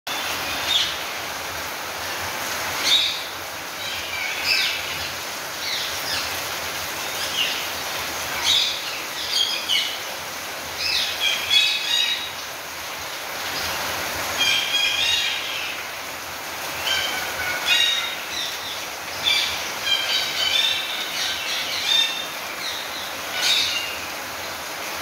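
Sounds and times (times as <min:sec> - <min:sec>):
rain hiss: 0:00.1 - 0:25.0
parakeets calling: 0:16.7 - 0:24.1.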